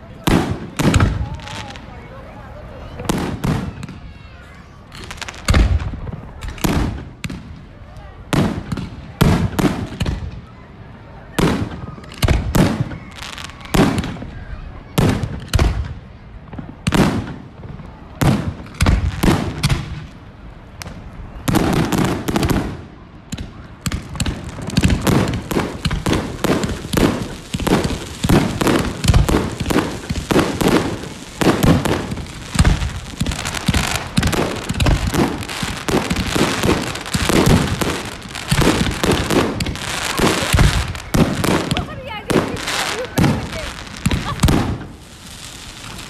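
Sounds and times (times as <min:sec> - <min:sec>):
fireworks bursting with bangs: 0:00.0 - 0:46.0
fireworks crackling: 0:00.0 - 0:46.0.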